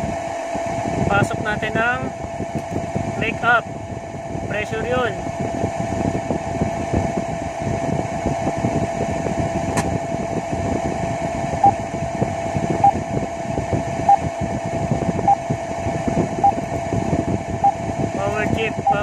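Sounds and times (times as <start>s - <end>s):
machinery hum: 0.0s - 19.0s
electronic alarm beep: 15.2s - 15.4s, 18.8s - 19.0s.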